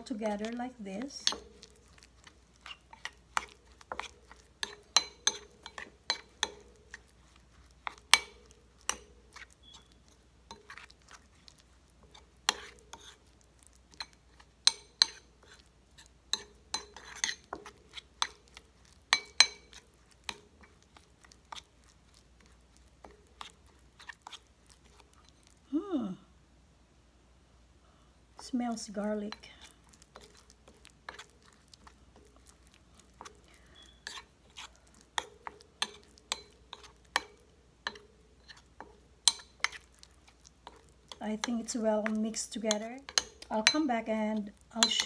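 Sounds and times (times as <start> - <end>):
metal utensil scraping a bowl: 0.0 - 13.3, 13.9 - 21.7, 33.2 - 39.9, 40.6 - 44.1, 44.8 - 45.0.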